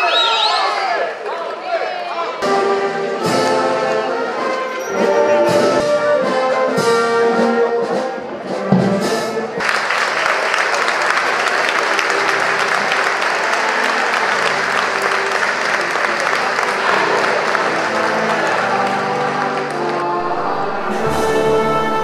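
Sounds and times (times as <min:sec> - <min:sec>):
brass band playing: 0:02.4 - 0:09.8, 0:10.8 - 0:22.0
crowd applause: 0:09.6 - 0:22.0.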